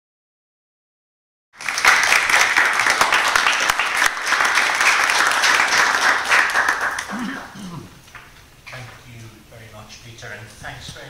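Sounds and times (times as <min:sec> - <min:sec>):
audience applauding: 0:01.6 - 0:07.9.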